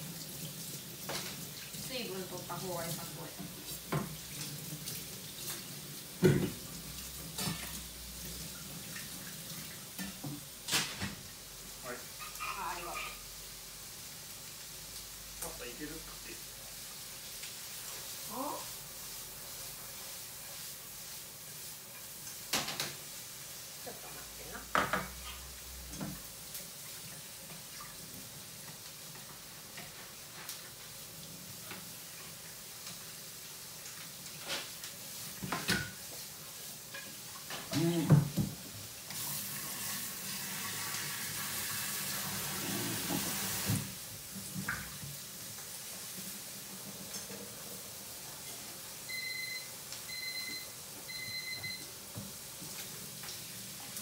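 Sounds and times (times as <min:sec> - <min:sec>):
tap running into sink: 0:03.4 - 0:04.2, 0:06.2 - 0:06.7
kitchenware clattering: 0:24.6 - 0:26.2, 0:35.4 - 0:36.0.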